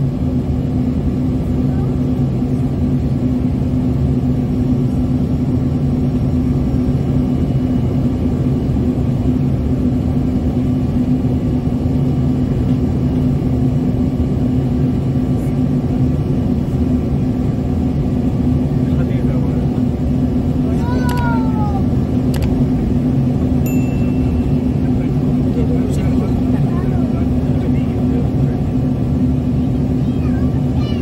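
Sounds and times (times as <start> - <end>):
jet cabin engine roar: 0.0 - 31.0
steady low hum: 0.0 - 31.0.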